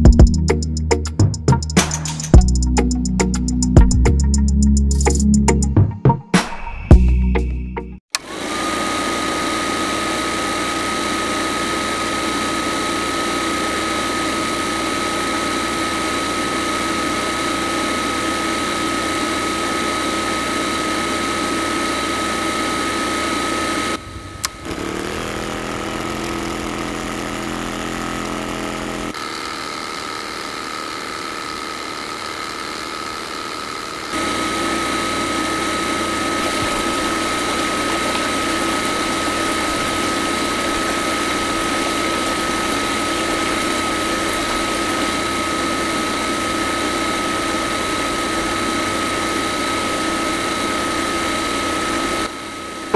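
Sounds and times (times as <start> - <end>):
small motor high whine: 8.1 - 52.9.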